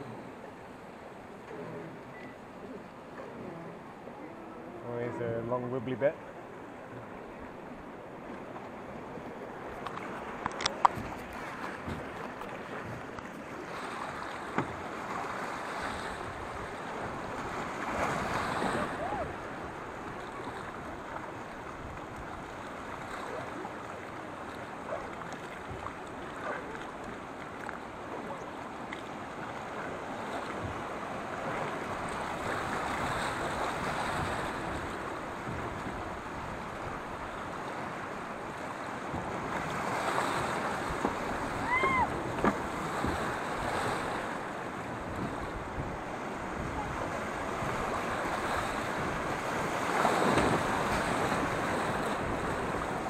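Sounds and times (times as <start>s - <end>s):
brief squeak: 2.1s - 2.4s
river rapids rushing: 13.6s - 21.9s, 39.9s - 44.4s.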